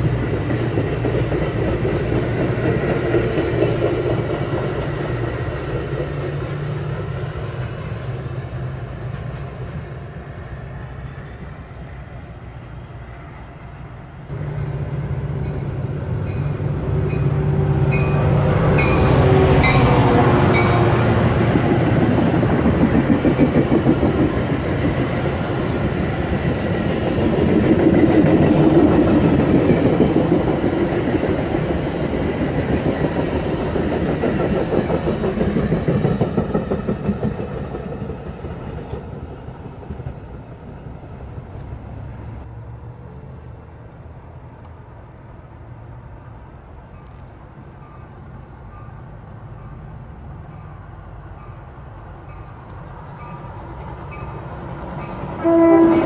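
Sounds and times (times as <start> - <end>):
train wheels clattering over rails: 0.0 - 7.8, 18.0 - 42.2.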